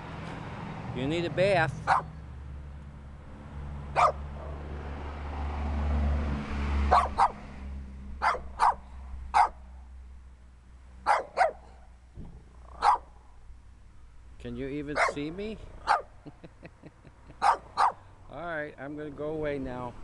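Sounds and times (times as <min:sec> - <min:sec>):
small dog barking: 0:01.9 - 0:02.1, 0:04.0 - 0:04.6, 0:06.9 - 0:07.4, 0:08.2 - 0:09.6, 0:11.0 - 0:11.8, 0:12.7 - 0:13.1, 0:15.0 - 0:15.2, 0:15.8 - 0:16.1, 0:17.4 - 0:18.0.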